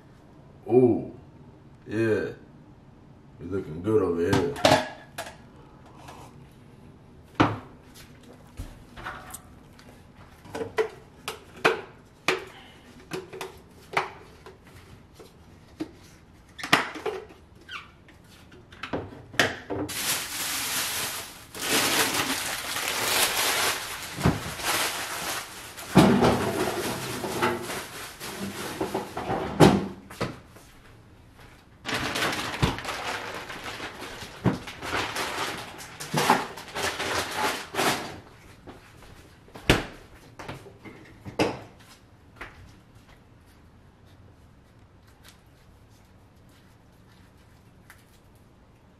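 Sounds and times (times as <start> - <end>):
kitchen items clattering: 19.6 - 30.0, 31.9 - 38.2.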